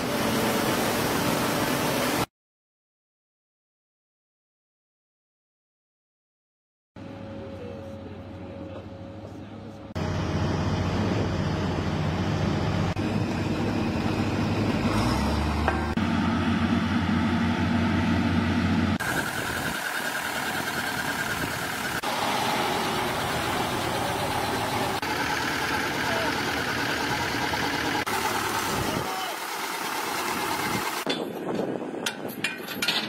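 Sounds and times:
heavy machinery engines running: 7.0 - 31.8.

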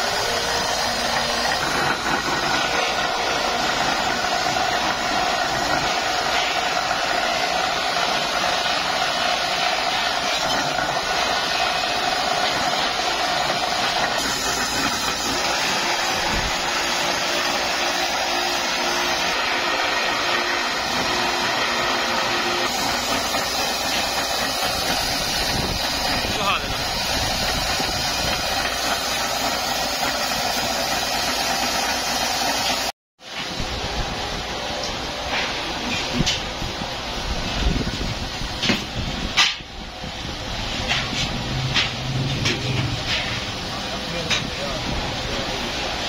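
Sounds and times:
grinding wheel whirring on steel: 0.0 - 32.9.

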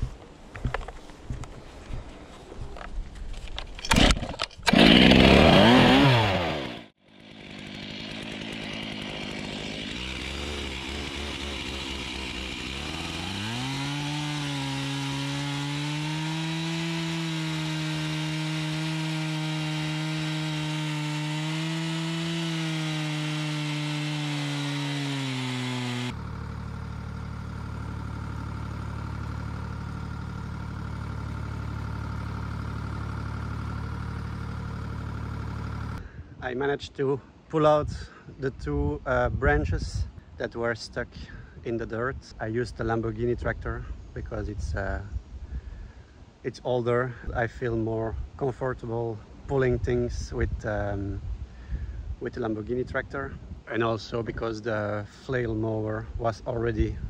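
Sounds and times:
tractor engine running: 2.8 - 36.0
chainsaw cutting branches: 3.8 - 36.2.

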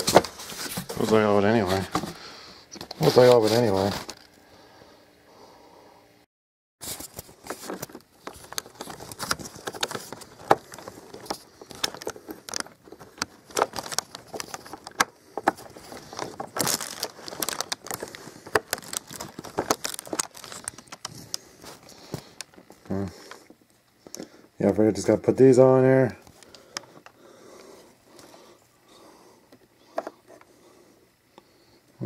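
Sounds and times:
plastic packaging rustling: 2.9 - 4.3, 6.8 - 23.5.

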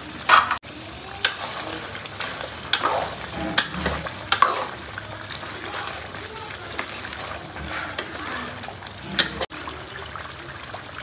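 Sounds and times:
gravy sizzling: 0.0 - 11.0
metal ladle scraping a pan: 1.2 - 9.5.

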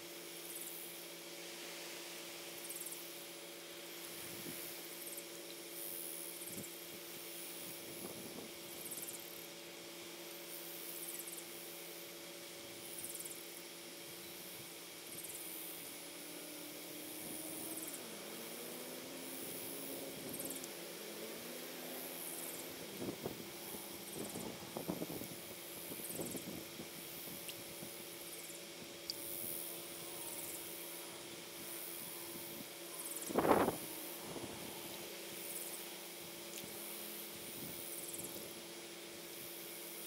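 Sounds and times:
steady low hum: 0.0 - 40.0
high-pitched buzzy calls: 14.0 - 38.6.

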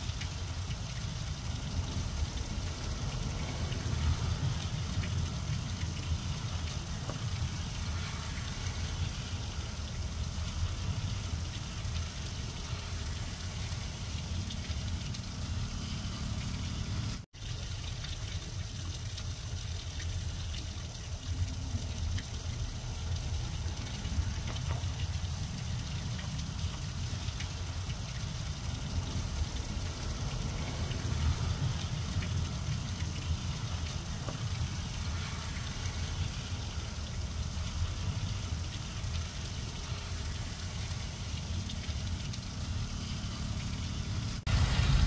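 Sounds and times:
rain falling on grass: 0.0 - 45.0
low rumble: 44.2 - 45.0.

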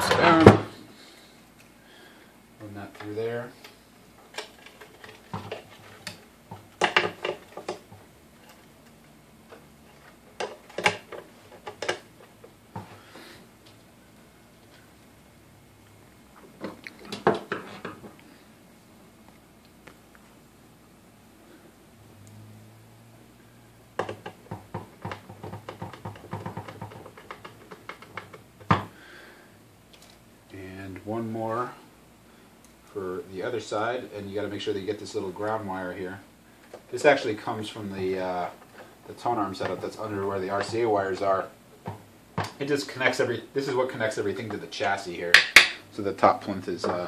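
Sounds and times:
hands clicking and tapping parts: 2.9 - 13.0, 24.0 - 29.0, 44.4 - 45.8
small parts clicking and tapping: 24.0 - 28.8.

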